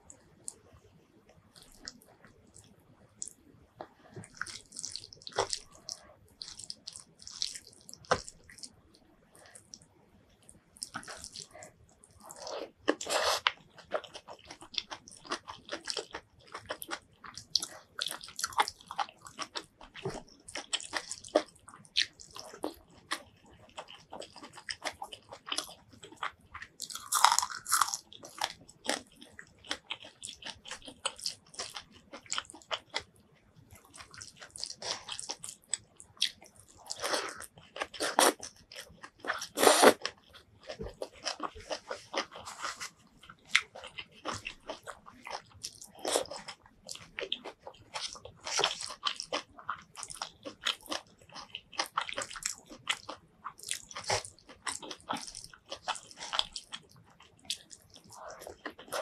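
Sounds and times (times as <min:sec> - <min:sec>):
chewing with crisp crunches: 0:01.5 - 0:59.0
loud crunch of bitten chilli: 0:23.8 - 0:33.1, 0:33.9 - 0:59.0.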